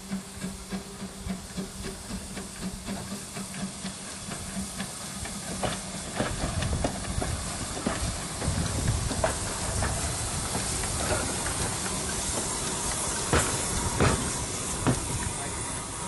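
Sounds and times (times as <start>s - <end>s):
steam locomotive hissing steam: 0.0s - 16.0s.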